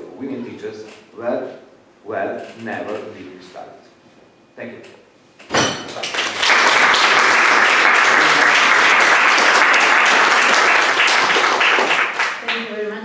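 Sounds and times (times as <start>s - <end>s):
audience applause: 6.0s - 12.8s.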